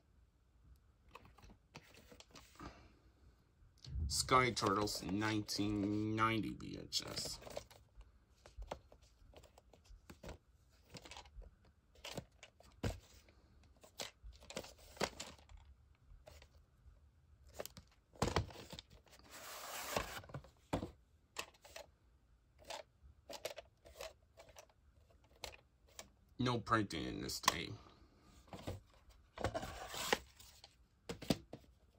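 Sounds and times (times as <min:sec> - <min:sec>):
cassette sliding out of case: 0:19.2 - 0:20.4.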